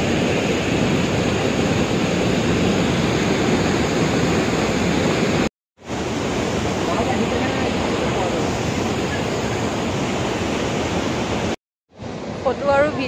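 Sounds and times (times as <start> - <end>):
waterfall roaring: 0.0 - 13.0.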